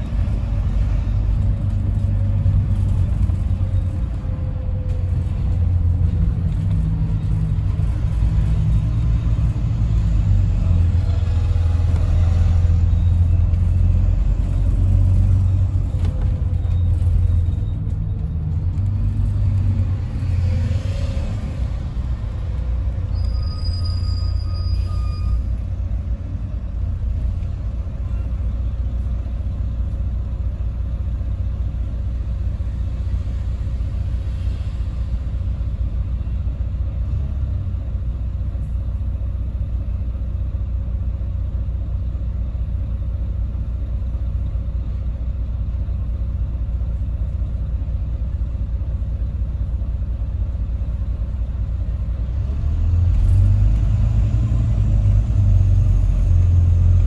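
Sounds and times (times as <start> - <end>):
bus engine idling: 0.0 - 57.0.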